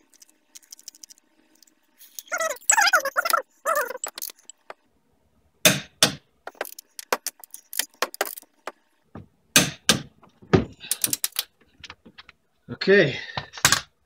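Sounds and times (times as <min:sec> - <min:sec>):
metallic clacks and ticks: 0:06.5 - 0:08.4.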